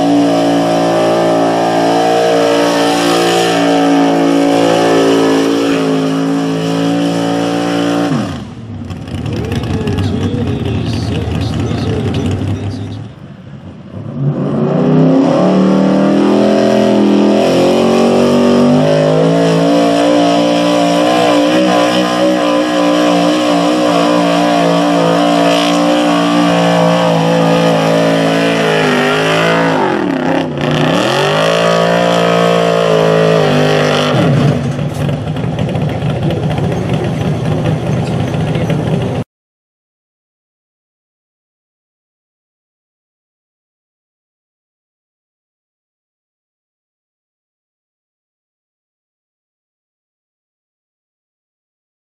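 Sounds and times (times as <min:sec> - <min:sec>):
truck engine revving high: 0:00.0 - 0:39.2.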